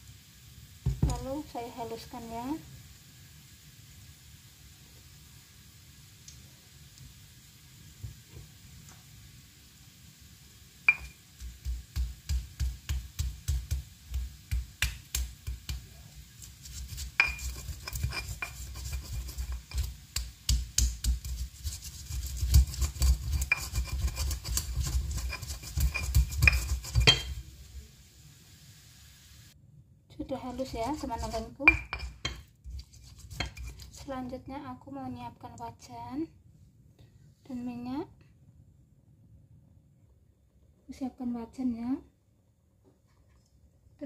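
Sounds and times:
stone pestle grinding in mortar: 16.4 - 27.4, 30.5 - 34.1.

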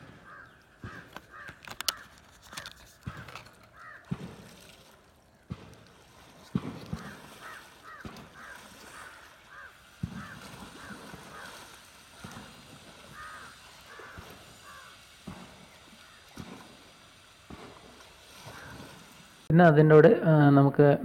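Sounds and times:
crows cawing: 0.0 - 5.0, 6.5 - 19.2
memory card clicks and knocks: 1.1 - 3.7.

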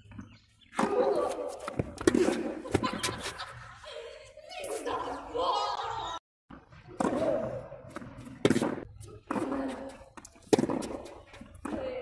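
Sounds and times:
tennis ball hits with rackets: 0.7 - 3.3, 6.8 - 12.0.

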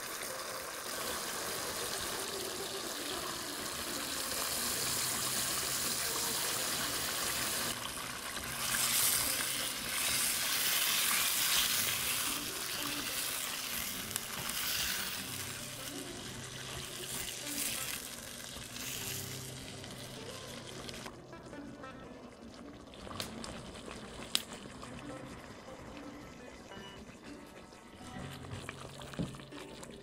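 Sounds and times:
sauce sizzling in a frying pan: 0.0 - 21.9.

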